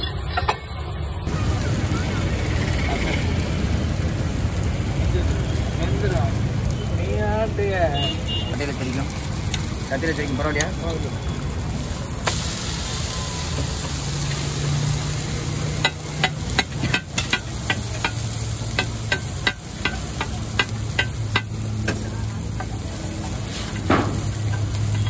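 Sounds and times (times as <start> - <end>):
hot griddle hissing: 0.0 - 25.0
metal spatula knocking on griddle: 15.8 - 22.7.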